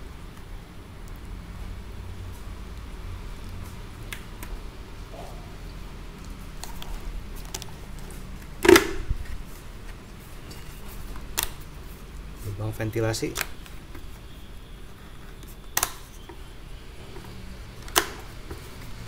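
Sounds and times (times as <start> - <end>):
low steady hum: 0.0 - 19.0
plastic helmet clicks: 8.6 - 9.1, 15.7 - 16.4, 17.8 - 18.6.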